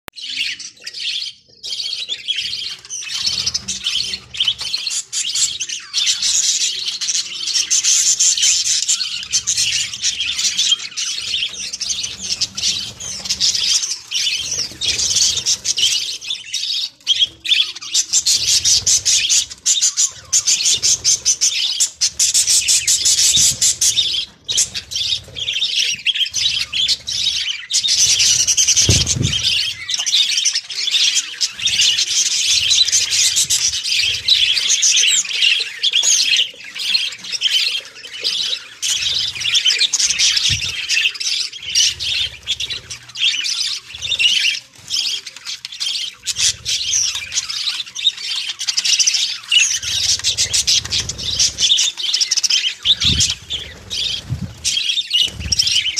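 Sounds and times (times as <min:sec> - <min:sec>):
budgerigars chattering: 0:00.2 - 0:55.9.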